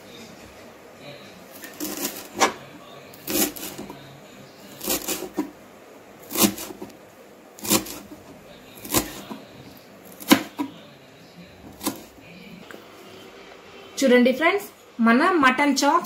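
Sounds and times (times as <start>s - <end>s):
knife chopping on cutting board: 1.6s - 2.6s, 3.2s - 4.0s, 4.8s - 5.5s, 6.2s - 6.9s, 7.6s - 8.2s, 8.8s - 9.4s, 10.1s - 10.8s, 11.7s - 12.1s.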